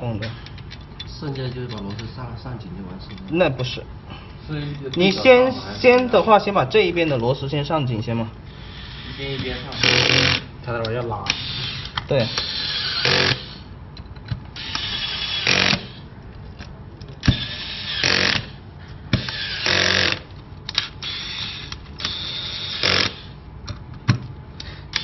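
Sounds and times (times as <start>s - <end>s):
electric screwdriver driving screws: 9.8s - 10.5s, 11.3s - 13.6s, 14.6s - 16.0s, 17.2s - 18.5s, 19.2s - 23.3s.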